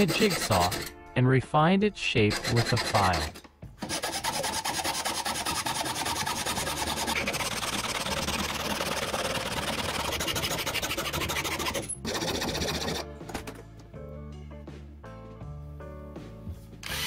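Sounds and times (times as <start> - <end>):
jigsaw cutting metal sheet: 2.5 - 13.0.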